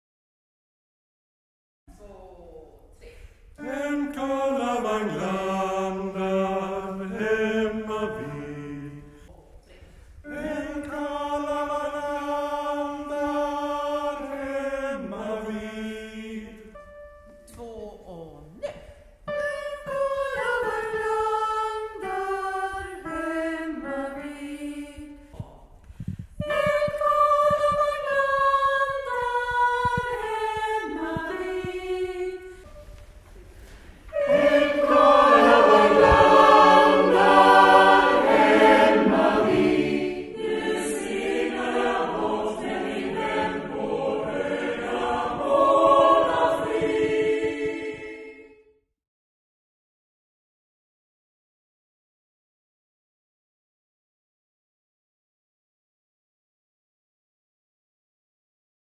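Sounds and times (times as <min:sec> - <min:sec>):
chamber choir singing: 0:03.6 - 0:09.3, 0:10.2 - 0:17.2, 0:19.3 - 0:25.3, 0:26.4 - 0:48.7.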